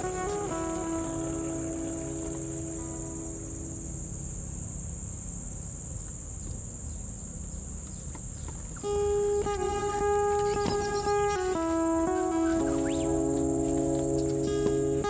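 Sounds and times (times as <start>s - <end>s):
background music: 0.0s - 5.3s, 8.8s - 15.0s
high-pitched insect drone: 0.0s - 6.9s, 8.7s - 15.0s.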